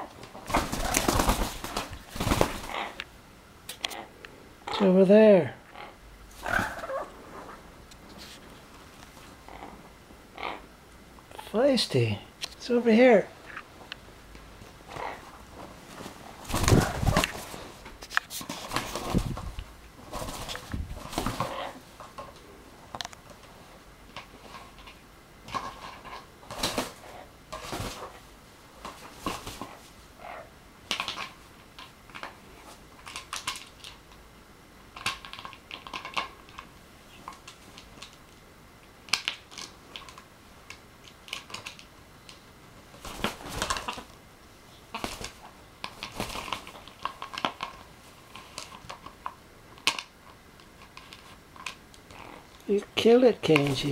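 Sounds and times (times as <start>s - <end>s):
parrot wrestling plastic bottle: 0.3s - 3.0s.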